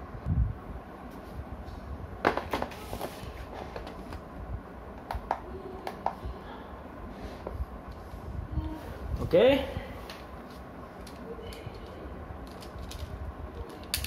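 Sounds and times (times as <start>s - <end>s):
plastic toy parts clicking: 11.0s - 14.0s.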